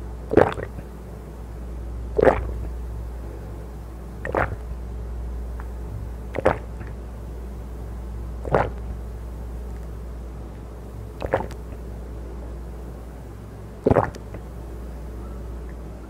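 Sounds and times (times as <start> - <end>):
steady low hum: 0.0 - 16.0
person gulping a drink: 0.3 - 0.8, 2.2 - 2.6, 4.3 - 4.6, 6.3 - 6.9, 8.4 - 8.8, 11.2 - 11.7, 13.9 - 14.2.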